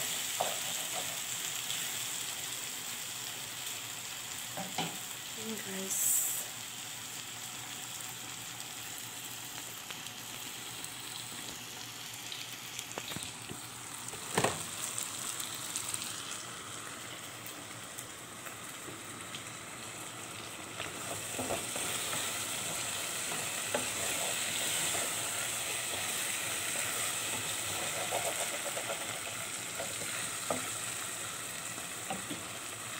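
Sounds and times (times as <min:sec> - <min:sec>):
vegetables sizzling in a pot: 0:00.0 - 0:32.9
wooden spoon stirring a pot: 0:20.8 - 0:30.7.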